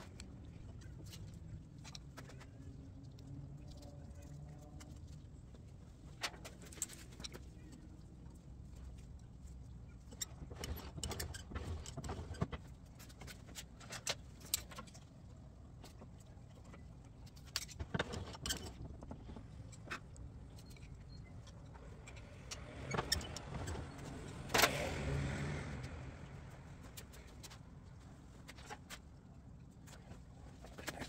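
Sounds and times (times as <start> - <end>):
low steady hum: 0.0 - 31.0.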